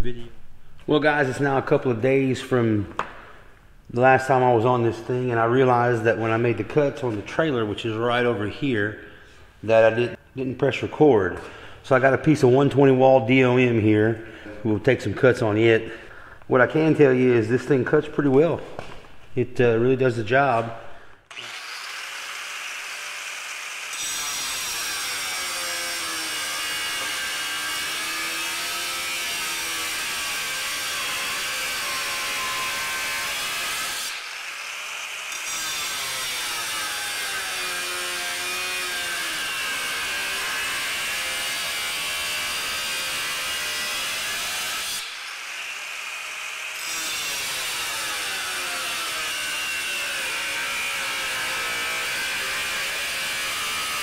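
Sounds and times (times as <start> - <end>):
angle grinder cutting steel: 21.3 - 54.0.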